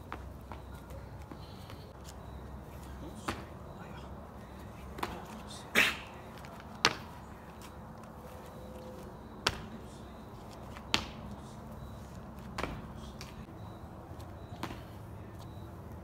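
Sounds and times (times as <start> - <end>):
feet landing on brick paving: 0.0 - 2.2, 2.8 - 3.6, 4.9 - 7.8, 9.0 - 9.8, 10.4 - 11.4, 12.1 - 13.5, 14.5 - 14.9.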